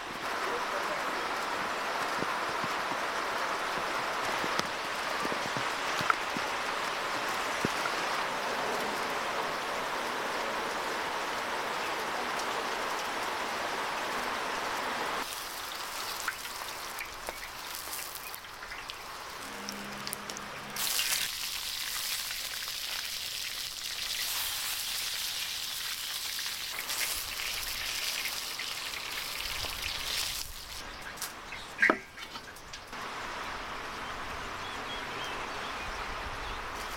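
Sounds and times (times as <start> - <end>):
steady rain hiss: 0.0 - 31.7, 32.5 - 36.9
vegetables frying in hot oil: 11.4 - 31.0.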